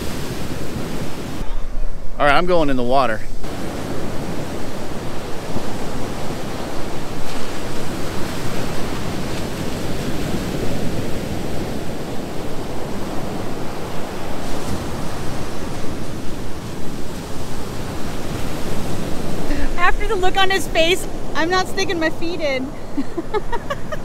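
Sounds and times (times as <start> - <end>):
ocean surf breaking: 0.0 - 24.0.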